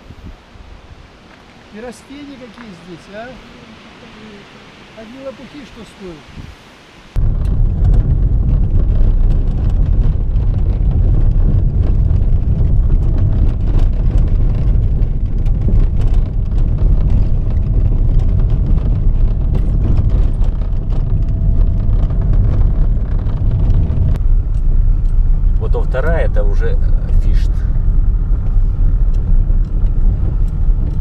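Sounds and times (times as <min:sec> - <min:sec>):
gravel clicks and knocks: 0:07.2 - 0:26.4
car rumbling on gravel road: 0:07.2 - 0:31.0.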